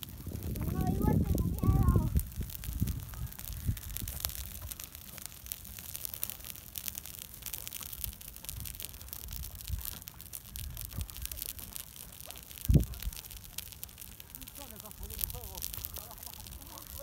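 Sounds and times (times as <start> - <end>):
low rumble: 0.0 - 4.8
dry grass burning and crackling: 0.0 - 17.0.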